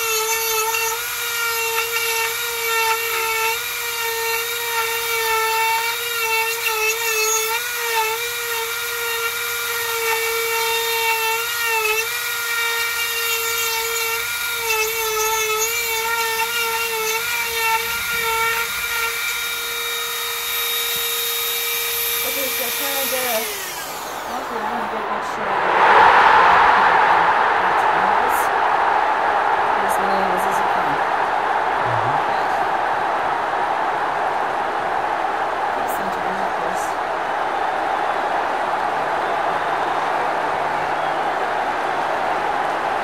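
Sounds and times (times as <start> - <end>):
rotary tool high whine: 0.0 - 25.1.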